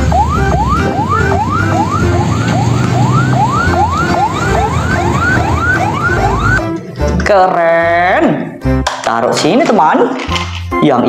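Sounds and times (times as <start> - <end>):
electronic siren whooping: 0.0 - 6.6.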